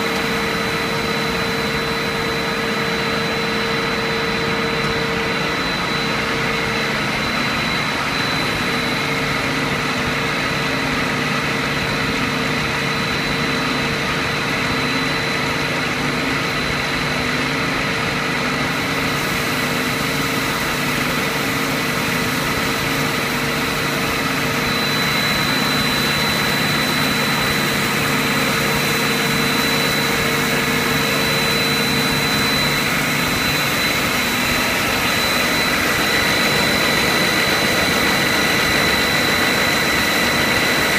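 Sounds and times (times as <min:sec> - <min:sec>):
machine hum and hiss: 0:00.0 - 0:40.9
high whining tones: 0:23.0 - 0:40.9.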